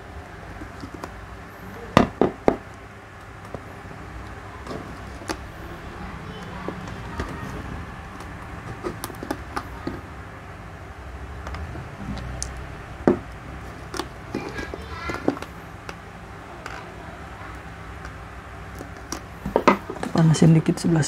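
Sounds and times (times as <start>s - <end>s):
plastic creaking: 4.6s - 10.0s, 13.6s - 16.0s, 16.6s - 17.1s.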